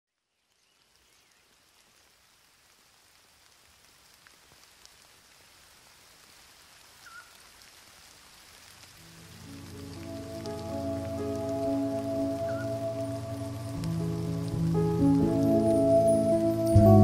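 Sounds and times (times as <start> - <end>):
faint forest ambience hiss: 0.1 - 17.0
faint bird chirp: 0.2 - 1.7, 7.0 - 7.4.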